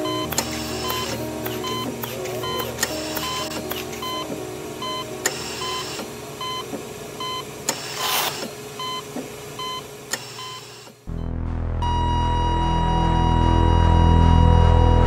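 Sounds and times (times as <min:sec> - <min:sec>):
low steady drone: 0:00.0 - 0:07.2, 0:11.1 - 0:15.0
heart-rate monitor beeping: 0:00.0 - 0:07.5, 0:08.8 - 0:15.0.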